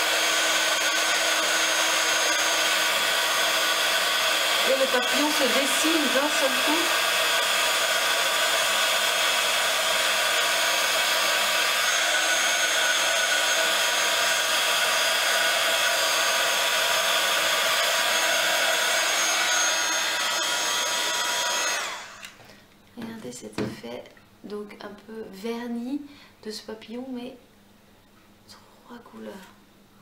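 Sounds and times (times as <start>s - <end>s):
heat gun blowing and whining: 0.0s - 22.4s.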